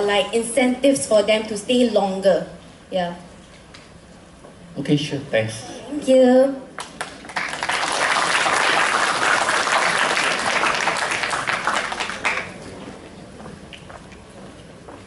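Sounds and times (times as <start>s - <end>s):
audience applauding: 6.8s - 12.7s.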